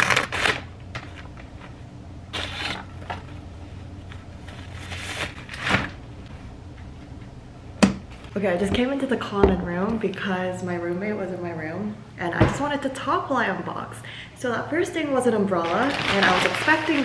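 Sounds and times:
paper bag rustling: 2.3s - 6.0s, 15.6s - 17.0s
umbrella fabric rustling: 15.6s - 17.0s.

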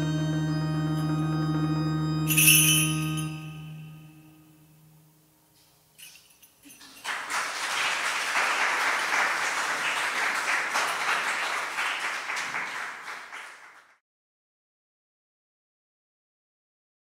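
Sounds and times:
audience applauding: 6.9s - 14.0s.

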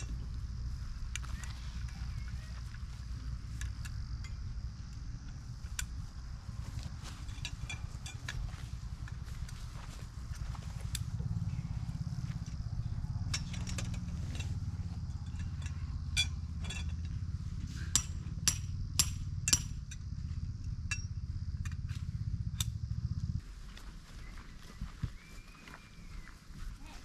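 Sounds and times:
steady low rumble: 0.0s - 23.9s
metallic clinks and taps: 7.1s - 8.7s, 13.2s - 21.9s.

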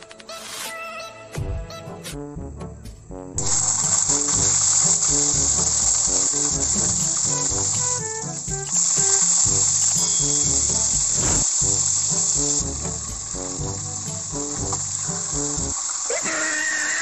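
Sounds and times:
music with bass beat: 2.2s - 15.8s
fish frying in hot oil: 3.4s - 17.0s.

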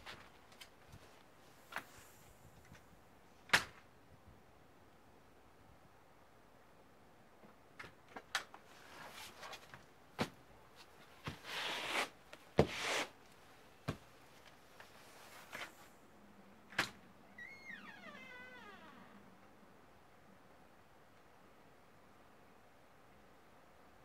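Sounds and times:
door opening and shutting: 16.7s - 19.2s.

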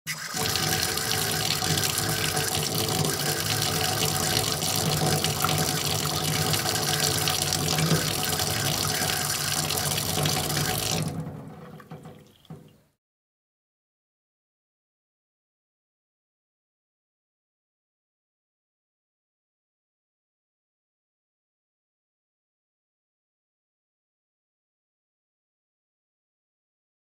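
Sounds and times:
faucet running into basin: 0.1s - 12.8s.

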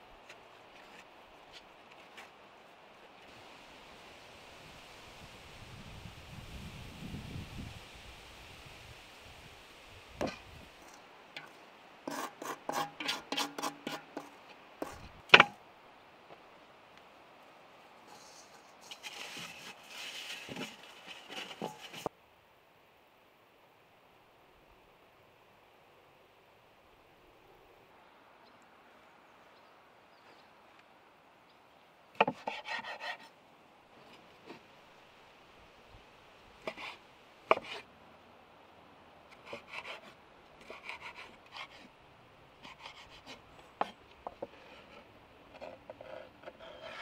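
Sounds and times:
metal bowl scraping on table: 45.6s - 47.0s.

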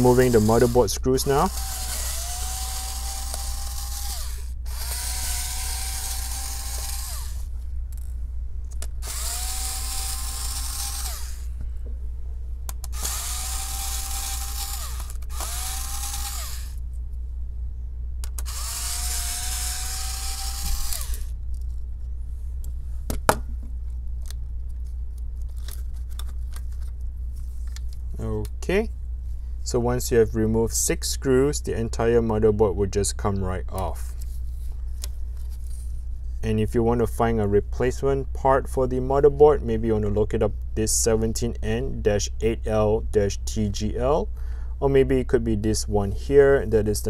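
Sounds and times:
electric screwdriver motor whine: 0.0s - 7.5s, 9.0s - 11.5s, 12.9s - 16.8s, 18.2s - 21.3s.

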